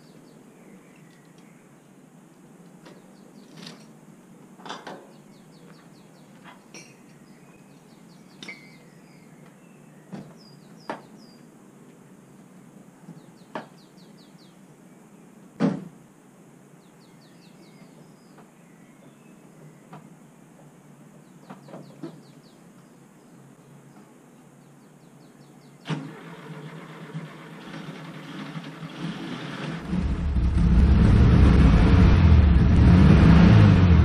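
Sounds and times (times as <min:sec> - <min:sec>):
small birds chirping: 0:00.0 - 0:02.0, 0:02.8 - 0:03.8, 0:05.0 - 0:11.5, 0:13.0 - 0:15.4, 0:16.8 - 0:20.4, 0:21.0 - 0:25.8.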